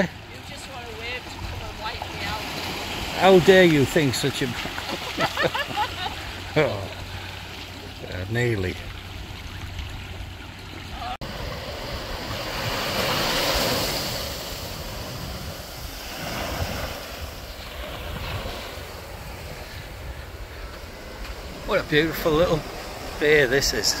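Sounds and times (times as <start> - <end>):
waves washing on beach: 0.0 - 24.0
wind buffeting microphone: 8.8 - 24.0.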